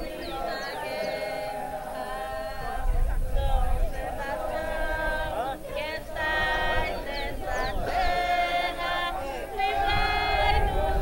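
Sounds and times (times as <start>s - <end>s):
group singing a slow religious song: 0.0s - 11.0s.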